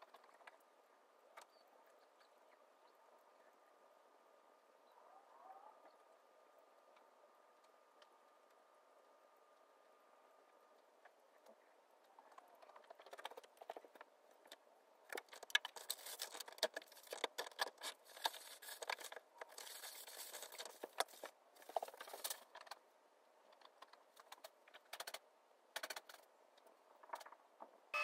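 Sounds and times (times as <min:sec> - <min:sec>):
faint irregular clicks and ticks: 0:05.8 - 0:27.8.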